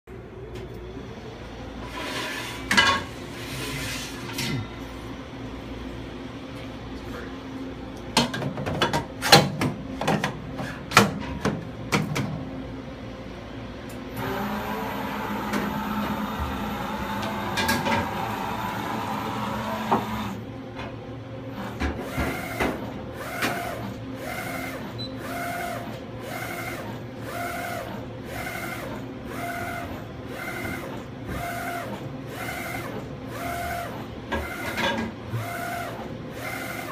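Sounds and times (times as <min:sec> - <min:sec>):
machine hum with high whine: 0:00.1 - 0:36.9
rhythmic print head whirring: 0:14.1 - 0:36.9.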